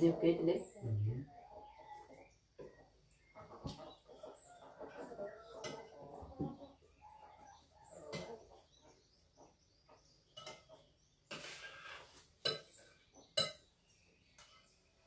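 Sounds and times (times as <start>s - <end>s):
spoons and crockery clinking: 13.4s - 13.7s.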